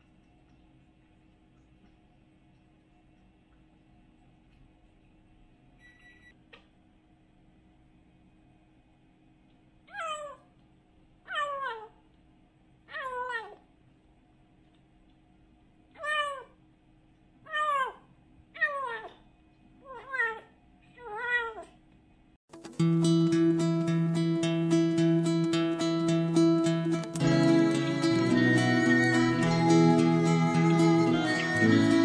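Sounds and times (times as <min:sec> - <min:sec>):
acoustic guitar music: 0:22.5 - 0:32.0.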